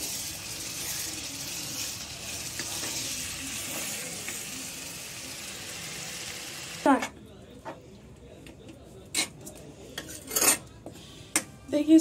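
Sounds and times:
meat sizzling in a pan: 0.0s - 6.9s.

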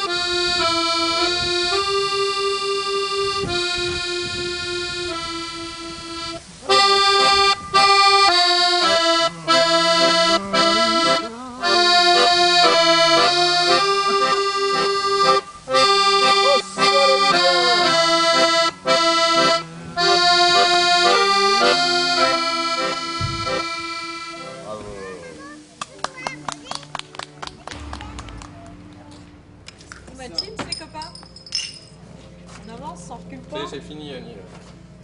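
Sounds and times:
button accordion playing chords: 0.0s - 24.8s.

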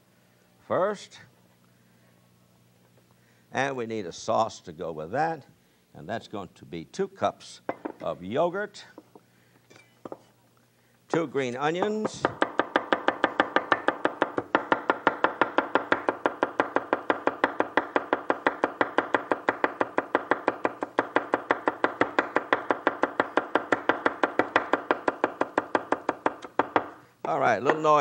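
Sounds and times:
knife chopping on wooden board: 11.8s - 27.0s.

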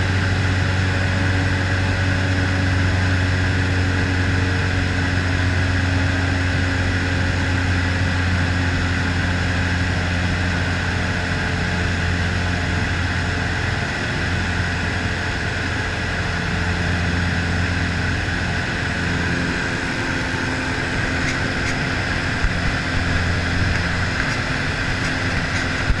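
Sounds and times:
aircraft engine and propeller droning: 0.0s - 26.0s
airflow noise: 17.4s - 26.0s.

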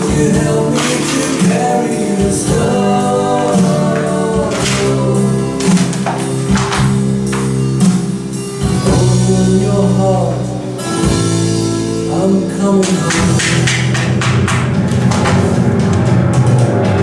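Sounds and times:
person singing: 0.0s - 6.8s, 8.6s - 11.2s, 12.0s - 13.9s.

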